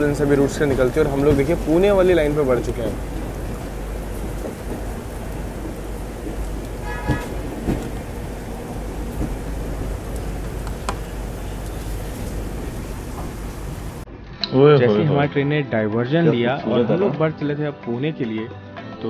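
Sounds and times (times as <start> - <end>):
rain and wind rushing: 0.0 - 14.1
train rumbling: 0.0 - 14.1.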